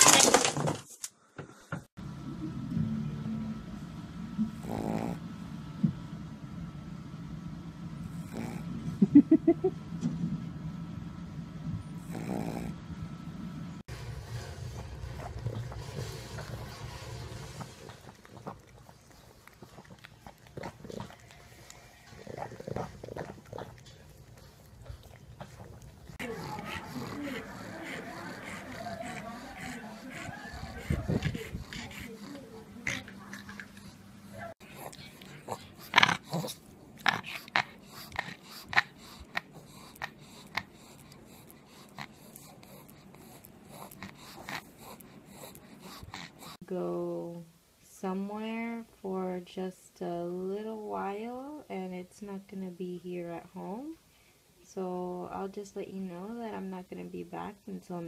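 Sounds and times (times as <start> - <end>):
dog making breathy noises: 14.2 - 46.6.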